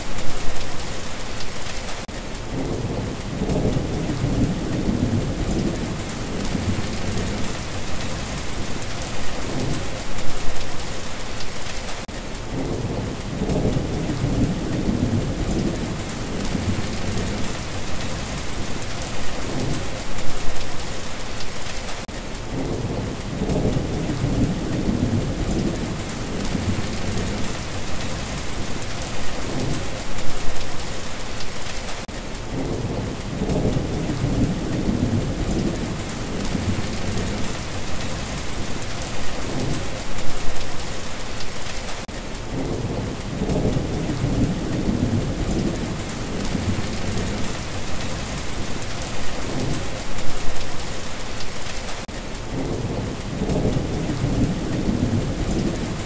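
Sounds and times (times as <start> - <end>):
heavy rain falling: 0.0 - 56.0
thunder rumbling: 2.5 - 10.6, 12.5 - 20.8, 22.5 - 30.8, 32.5 - 40.8, 42.5 - 50.9, 52.5 - 56.0.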